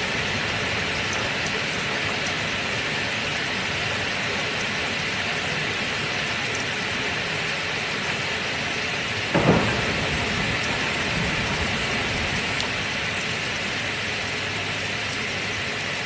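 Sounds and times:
heavy rain: 0.0 - 16.0
thunder clap rumbling: 9.3 - 13.7.

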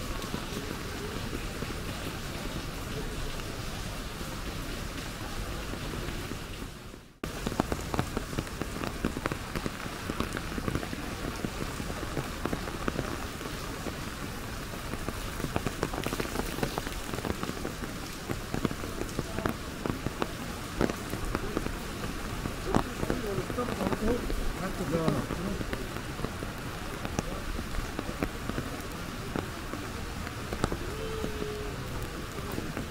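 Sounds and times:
rain on an umbrella: 0.0 - 32.9.

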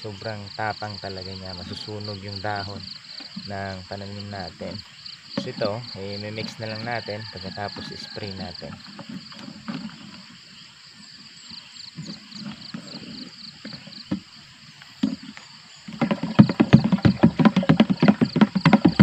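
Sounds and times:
insects chirping: 0.0 - 19.0
knocks from handling sprayer: 16.0 - 19.0.

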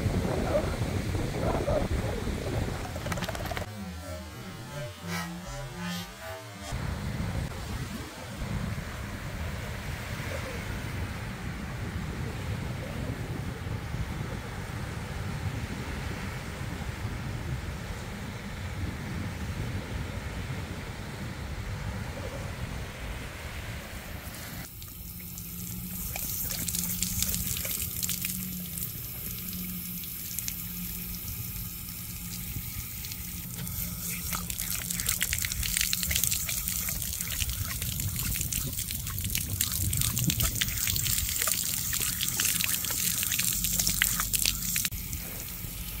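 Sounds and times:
water spraying from hose: 24.3 - 46.0
water splashing: 24.6 - 46.0.

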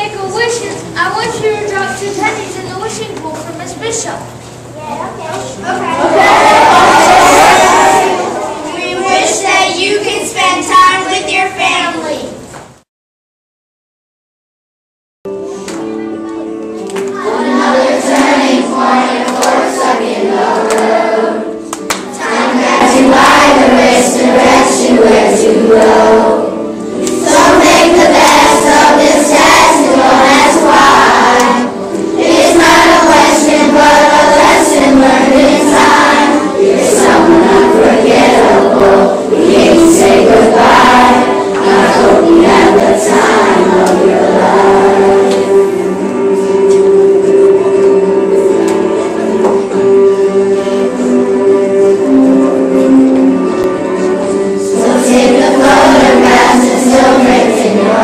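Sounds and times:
children singing in chorus: 5.9 - 10.3, 17.1 - 58.0.

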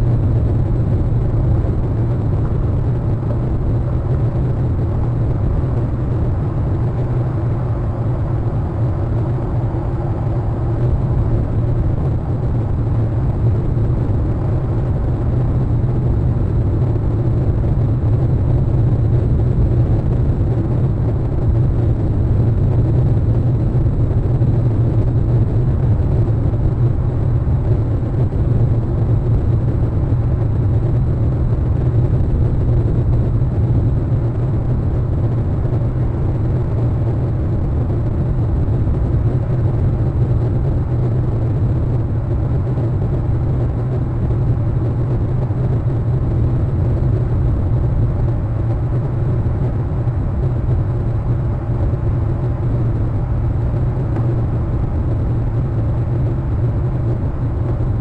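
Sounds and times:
low outdoor rumble: 0.0 - 58.0.

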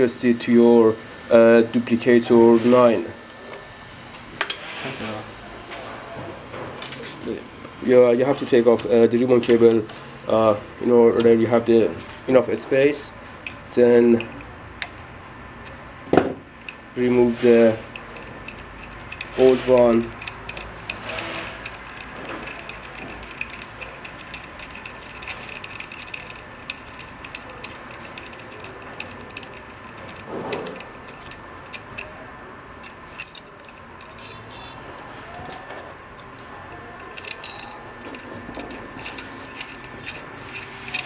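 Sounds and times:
light metallic clicks and rattles: 16.6 - 32.2, 32.8 - 35.6.

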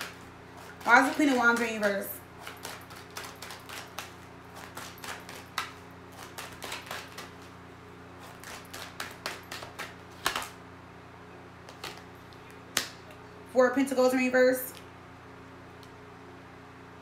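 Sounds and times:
cards being shuffled: 0.0 - 7.6, 8.2 - 10.6, 11.6 - 12.9
steady low hum: 0.0 - 17.0
card snap: 8.4 - 10.6.

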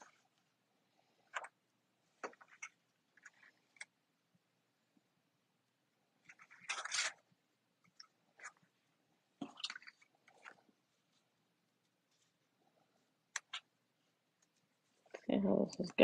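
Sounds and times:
paper rustle: 6.3 - 7.2.

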